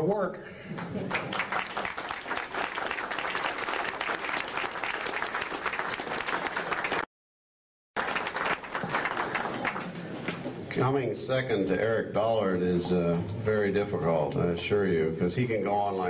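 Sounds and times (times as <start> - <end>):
audience applauding: 0.8 - 7.1, 8.0 - 10.5.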